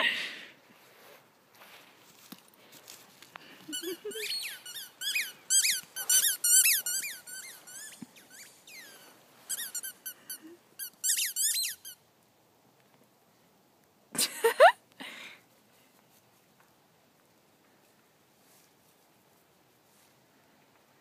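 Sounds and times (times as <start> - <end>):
squeaky dog toy squeaking: 3.7 - 12.0.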